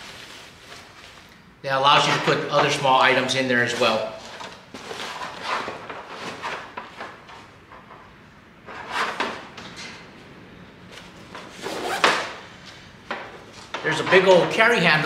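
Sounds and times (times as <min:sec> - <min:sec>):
nylon pack rustling: 0:00.0 - 0:01.4.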